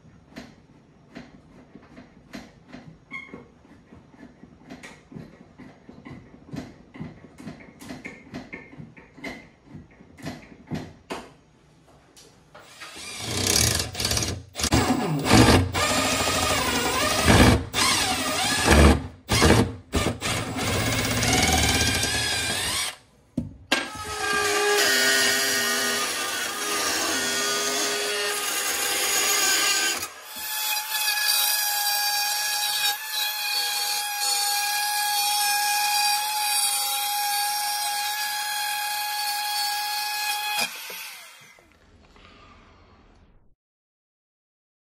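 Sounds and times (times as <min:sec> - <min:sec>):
power tool whining: 0:12.6 - 0:23.0.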